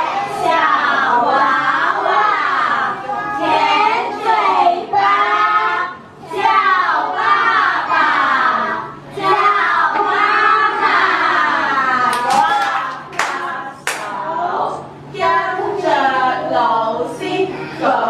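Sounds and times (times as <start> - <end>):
children reciting in unison: 0.0 - 12.1, 13.3 - 18.0
handclaps: 12.1 - 14.1.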